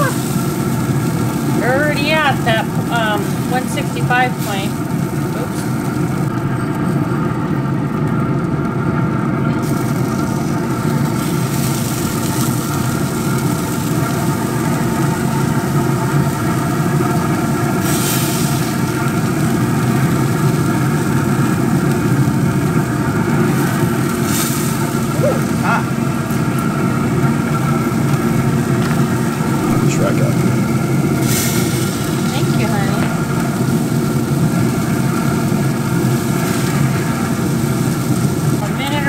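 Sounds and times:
motor humming: 0.0s - 6.8s, 18.7s - 39.0s.

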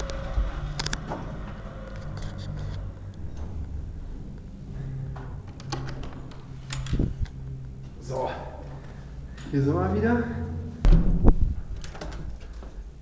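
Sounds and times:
steady low hum: 0.0s - 13.0s
handheld camera handling rumble: 1.9s - 3.3s.

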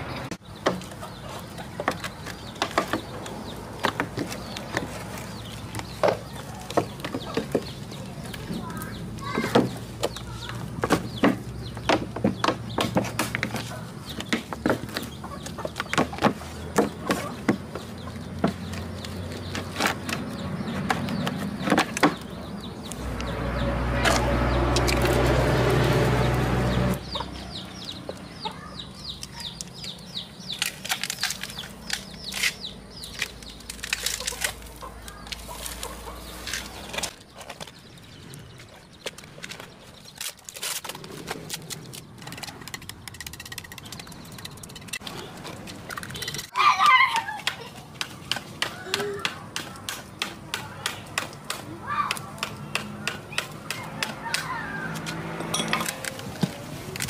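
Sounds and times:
chickens clucking: 0.0s - 23.7s, 26.7s - 30.4s, 34.1s - 37.4s
knocks on cement and plastic: 1.8s - 5.0s, 5.8s - 22.4s.

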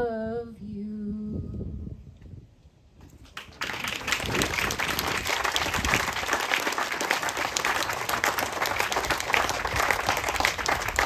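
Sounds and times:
crowd applauding: 3.3s - 11.0s.

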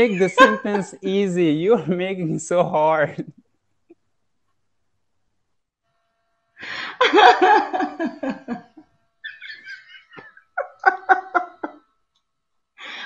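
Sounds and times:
woman laughing: 0.0s - 0.9s, 6.7s - 11.8s
man laughing: 0.0s - 1.0s, 6.7s - 11.8s.

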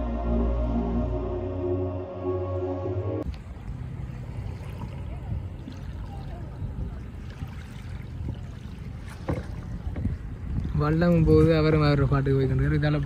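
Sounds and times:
water lapping: 3.2s - 13.0s
wind rumbling on microphone: 3.2s - 13.0s.

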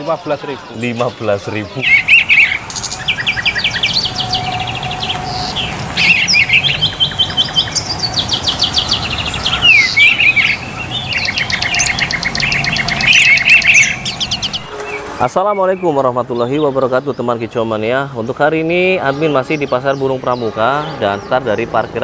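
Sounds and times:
songbird trilling and chirping: 0.7s - 16.8s.

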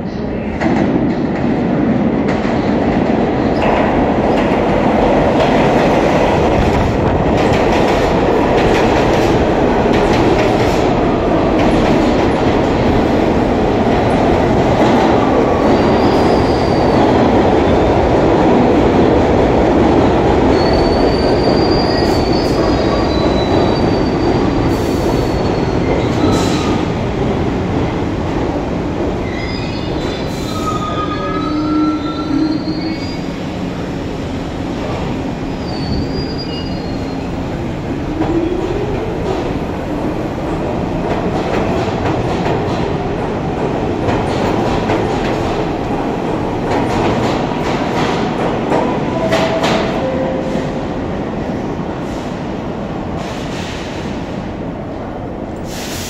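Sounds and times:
train wheels rumbling on rail: 0.0s - 56.0s
high squeals: 35.6s - 37.4s.

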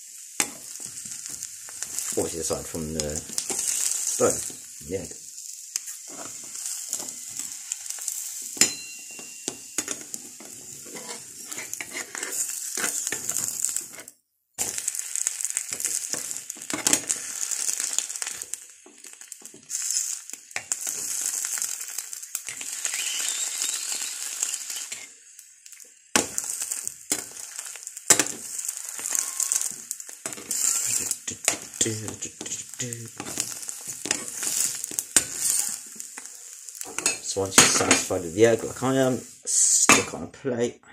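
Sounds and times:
egg sizzling in pan: 0.0s - 40.2s
spatula scraping and tapping pan: 0.4s - 2.2s, 3.2s - 4.7s, 5.7s - 18.5s, 26.2s - 39.1s.

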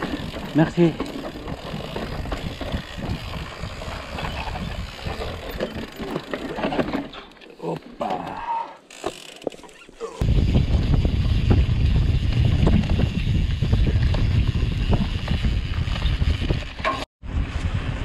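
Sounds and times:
wind buffeting microphone: 0.0s - 5.9s, 10.2s - 18.0s
bike rattling over bumps: 0.0s - 7.5s, 8.9s - 18.0s
tyres on dirt: 0.0s - 17.9s.

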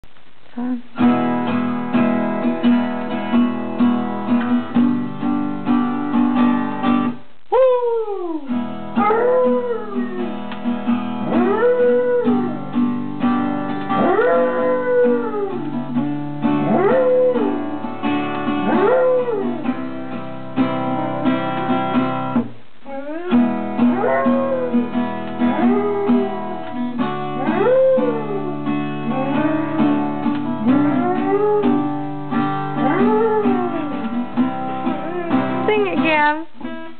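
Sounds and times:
acoustic guitar strummed: 0.6s - 7.4s, 8.4s - 36.9s
dog howling: 7.5s - 10.4s, 11.2s - 12.6s, 14.0s - 15.8s, 16.6s - 17.7s, 18.6s - 19.7s, 22.9s - 32.0s, 32.7s - 34.1s, 34.8s - 35.7s.

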